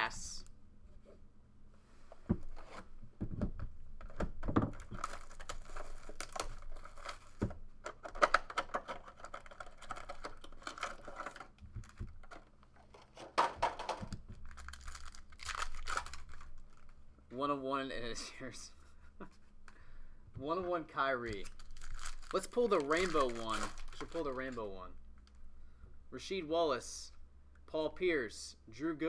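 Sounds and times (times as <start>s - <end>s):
foil pack tearing open: 4.7s - 7.4s, 8.0s - 12.4s, 14.4s - 16.9s, 21.4s - 24.6s
plastic wrap tearing and crinkling: 4.7s - 7.4s, 8.0s - 13.2s, 14.4s - 17.0s, 21.3s - 24.6s.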